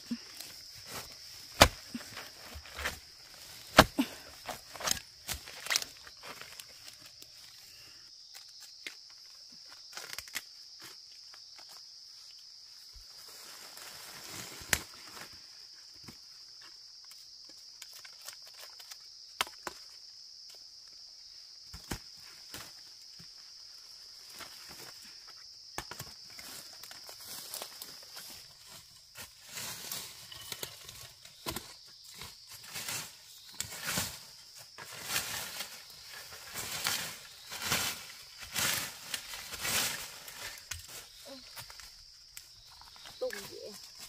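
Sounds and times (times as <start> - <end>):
footsteps in undergrowth: 0.0 - 7.5, 32.0 - 44.0
rustle: 0.0 - 19.1, 21.7 - 44.0
high insect drone: 0.0 - 44.0.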